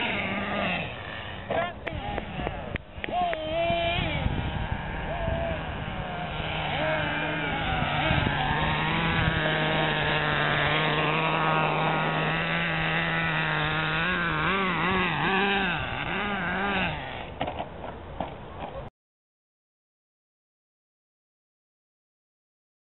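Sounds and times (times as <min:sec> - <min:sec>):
model car motor revving: 0:00.0 - 0:17.4.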